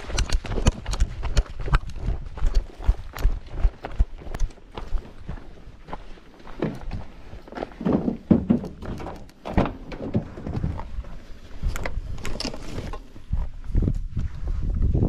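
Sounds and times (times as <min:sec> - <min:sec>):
footsteps on gravel: 0:00.0 - 0:08.3.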